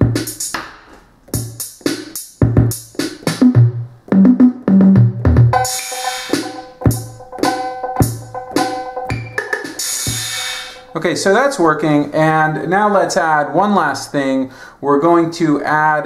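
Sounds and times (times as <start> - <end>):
electronic drum hits: 2.4 - 11.1
held pitched sound with hiss: 9.6 - 11.8.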